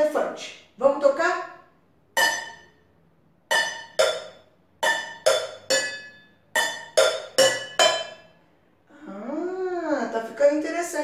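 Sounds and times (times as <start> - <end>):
pencils striking metal cookware: 2.2 - 2.8, 3.5 - 8.3.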